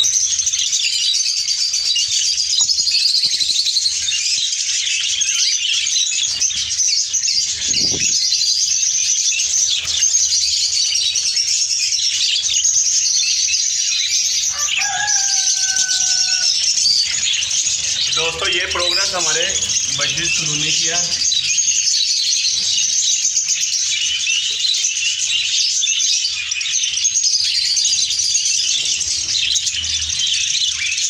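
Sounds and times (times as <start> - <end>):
budgerigars chattering and chirping: 0.0 - 31.0
soft thump: 7.7 - 8.2.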